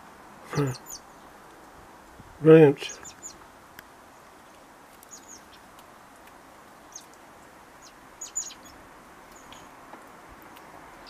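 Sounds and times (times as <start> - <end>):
fledgling blackbird begging chirps: 0.5 - 1.3, 2.9 - 3.4, 5.0 - 5.7, 6.8 - 7.2, 7.8 - 9.7.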